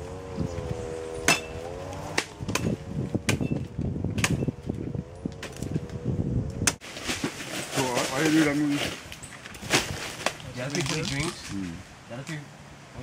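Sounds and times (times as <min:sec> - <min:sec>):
branches rustling: 0:00.0 - 0:13.0
sharp knocks: 0:01.2 - 0:04.5.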